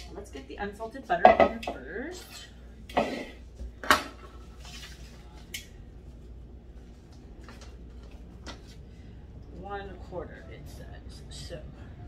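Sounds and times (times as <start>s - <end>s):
low steady hum: 0.0s - 12.0s
kitchenware clattering: 1.2s - 1.9s.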